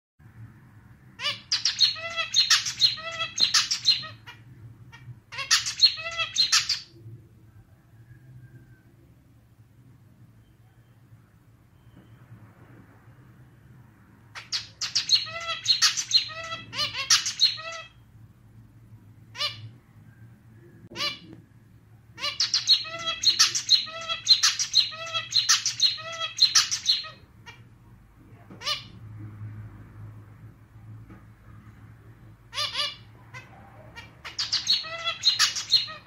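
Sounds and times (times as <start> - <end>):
finch singing: 1.2 - 4.4, 5.3 - 7.0, 14.4 - 18.0, 22.2 - 27.6, 32.5 - 36.0.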